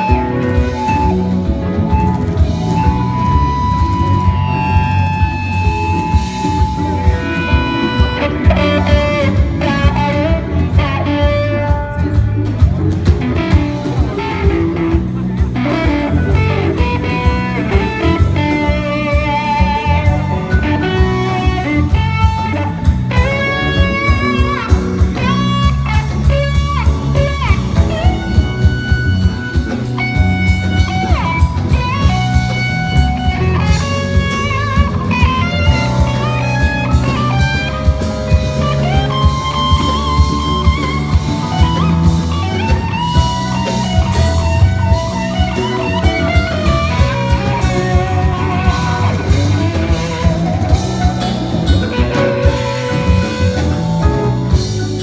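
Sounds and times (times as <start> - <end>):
bass: 0.0 - 55.0
drum kit beat: 0.0 - 55.0
electric guitar lead: 0.0 - 55.0
keyboards: 0.0 - 55.0.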